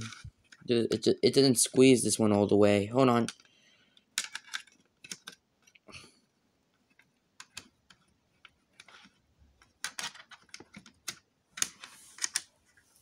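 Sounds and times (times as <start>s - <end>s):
plastic and wire clicking: 3.2s - 5.8s, 6.8s - 12.5s.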